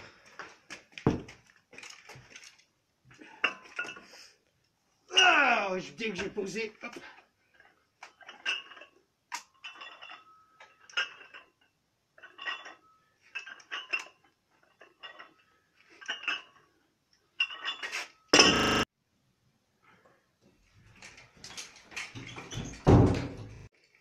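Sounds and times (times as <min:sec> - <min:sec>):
dumbbells crashing on concrete: 0:01.0 - 0:01.4
dumbbell plates clinking: 0:07.5 - 0:18.0.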